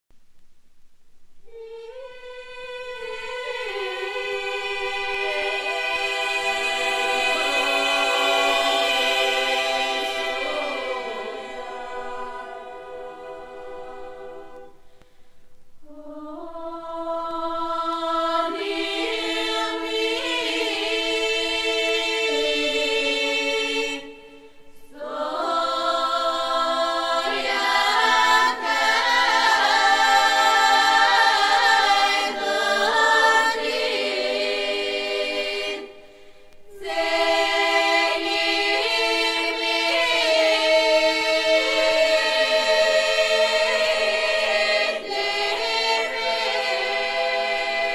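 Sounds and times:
choir singing: 1.5 - 14.9, 15.8 - 47.9.

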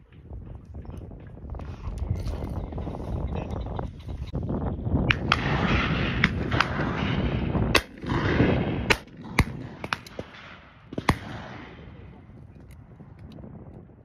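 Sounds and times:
shotguns firing: 5.1 - 12.1.

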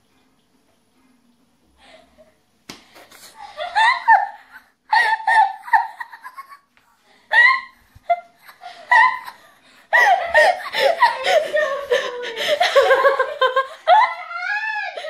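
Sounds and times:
high-pitched giggling laughter: 3.4 - 6.7, 7.3 - 15.0.

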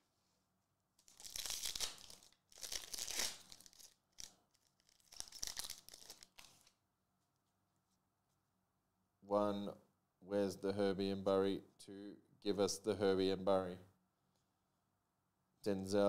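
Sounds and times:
foil wrapper tearing and crinkling: 1.0 - 6.7.

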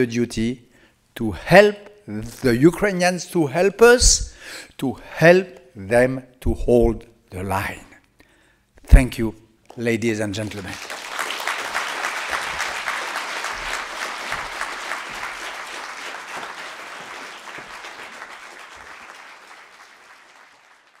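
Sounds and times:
audience applauding: 10.5 - 21.0.

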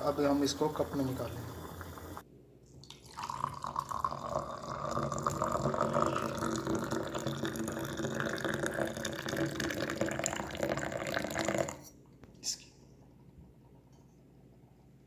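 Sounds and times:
tea pouring into mug: 2.8 - 11.8.

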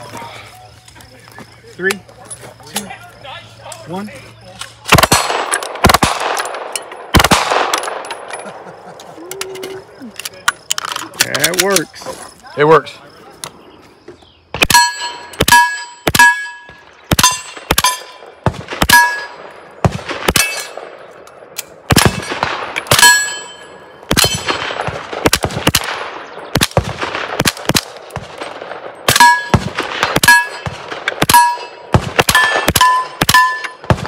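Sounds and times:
suppressed rifle shots: 4.9 - 8.4, 14.6 - 21.2, 21.8 - 23.4, 24.1 - 34.0
steel target ringing: 14.7 - 18.2, 18.9 - 19.5, 22.9 - 24.6, 29.1 - 29.6, 30.2 - 30.7, 31.3 - 33.8.

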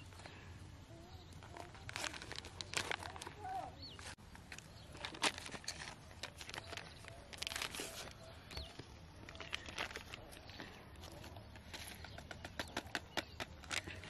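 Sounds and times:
paper packet crinkling and tearing: 1.4 - 12.1.

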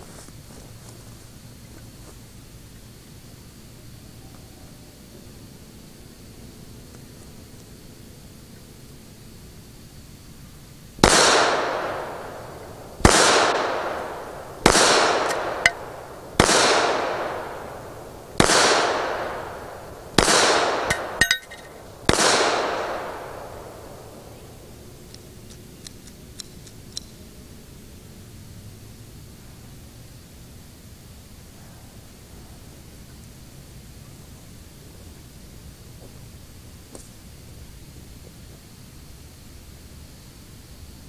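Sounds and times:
pistol shots echoing: 11.0 - 12.4, 13.0 - 17.7, 18.4 - 19.6, 20.2 - 23.5
small metallic clinks: 20.9 - 21.8.

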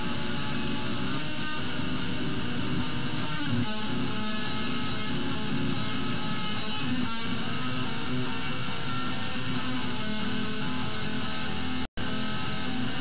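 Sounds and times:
electric guitar metal riff: 0.0 - 13.0
sharp high ticks: 0.0 - 13.0.

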